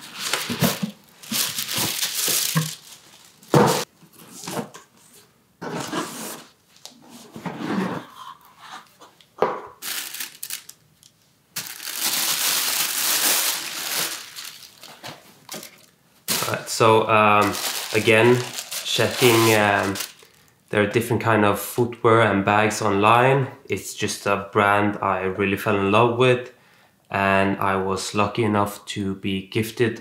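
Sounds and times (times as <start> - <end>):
tissue paper crinkling: 0.0 - 3.9, 9.8 - 10.8, 11.6 - 16.6, 17.4 - 20.4
cardboard box rustling: 0.0 - 4.8.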